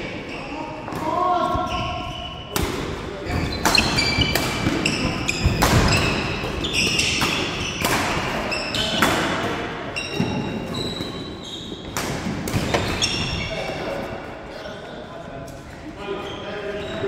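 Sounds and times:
shoes squeaking on wooden court: 0.1s - 17.0s
racket hitting shuttlecock: 3.6s - 9.5s.

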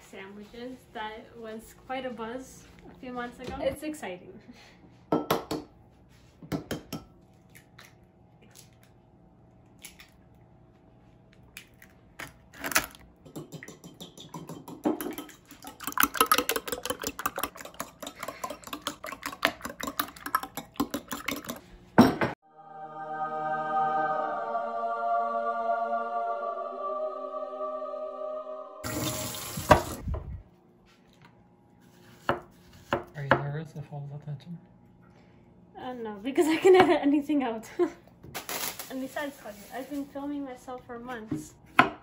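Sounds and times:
fork whisking eggs in bowl: 13.3s - 21.7s
music: 22.4s - 29.8s.

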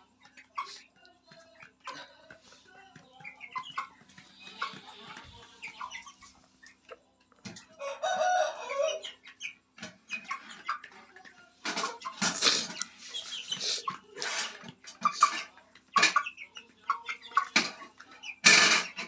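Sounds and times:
chickens clucking: 0.0s - 19.0s.

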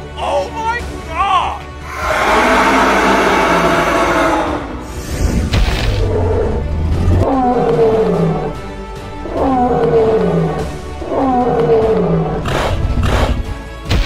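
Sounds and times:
dinosaur roar: 1.8s - 13.4s.

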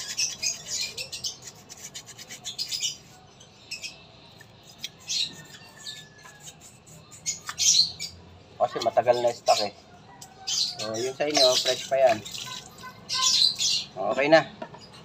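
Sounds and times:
scratchy rubbing of brake piston: 0.0s - 3.2s, 4.6s - 7.9s.

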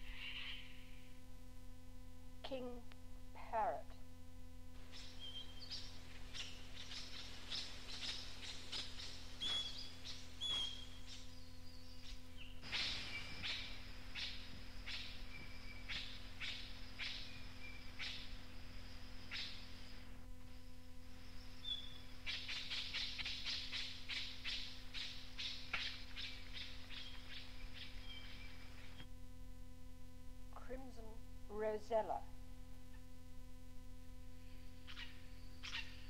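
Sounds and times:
cassette hum and hiss: 0.0s - 36.0s
whistled bird notes: 4.9s - 18.4s, 21.6s - 29.0s.

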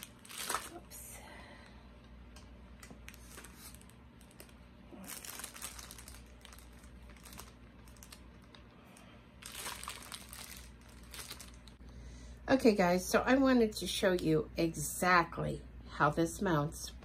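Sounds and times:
plastic wrapping crinkling: 0.0s - 1.0s, 2.7s - 11.8s.

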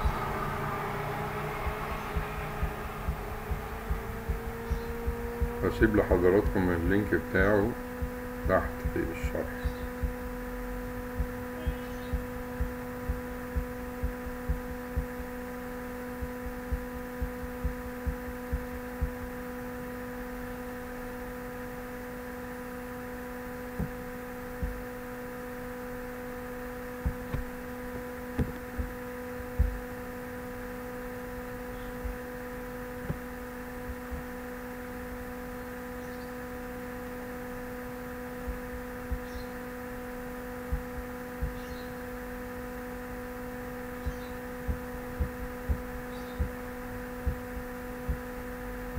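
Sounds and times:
soft low thumps: 0.0s - 19.6s, 23.6s - 25.0s, 26.2s - 35.4s, 38.2s - 41.9s, 43.8s - 48.9s
pitched electrical hum: 0.0s - 48.9s.

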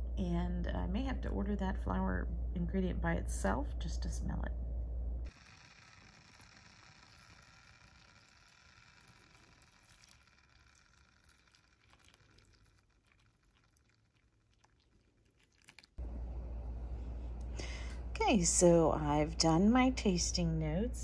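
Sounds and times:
low hum: 0.0s - 14.0s, 16.0s - 21.0s
water trickling into cup: 7.0s - 16.0s
small drips and clicks: 7.2s - 16.0s.

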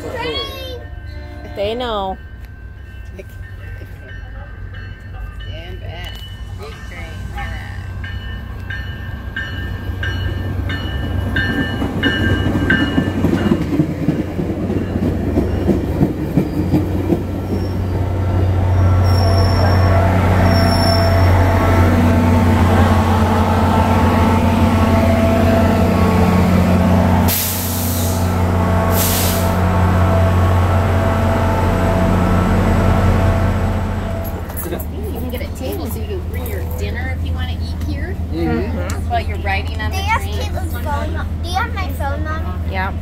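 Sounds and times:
train bell ringing: 0.0s - 27.3s, 29.5s - 37.7s
squealing wheels and brakes: 16.4s - 18.1s, 18.7s - 21.5s
loud air hisses: 27.2s - 29.6s.

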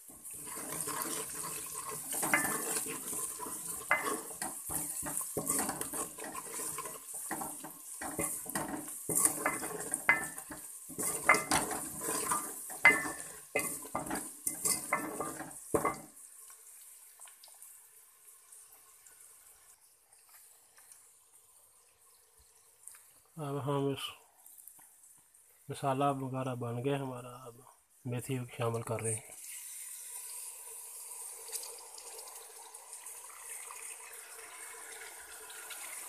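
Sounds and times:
ladle scraping and knocking pot: 0.0s - 16.1s
frying hiss: 0.0s - 36.0s.

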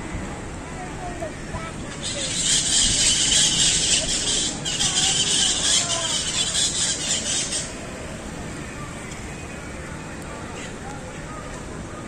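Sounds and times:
parrots screeching: 2.0s - 7.8s.

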